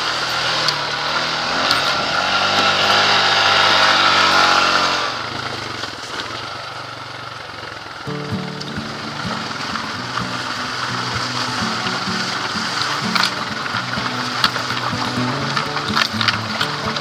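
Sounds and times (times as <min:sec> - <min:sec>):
quad engine revving: 0:00.0 - 0:17.0.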